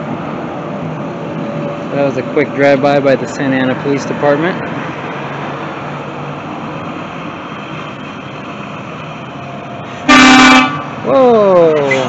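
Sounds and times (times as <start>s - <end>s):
bus engine running: 0.0s - 12.0s
loud horn blast: 10.0s - 11.0s.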